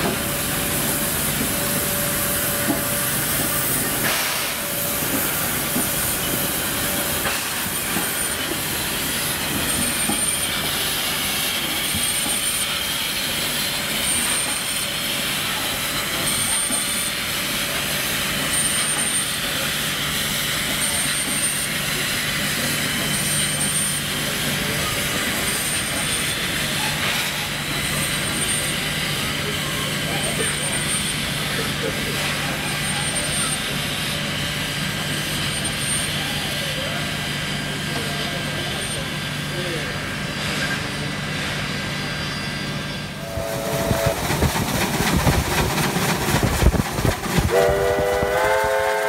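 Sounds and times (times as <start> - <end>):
locomotive engine hum: 0.0 - 49.0
train clattering rumble: 43.0 - 49.0
steam locomotive whistle: 43.2 - 44.2, 47.5 - 49.0.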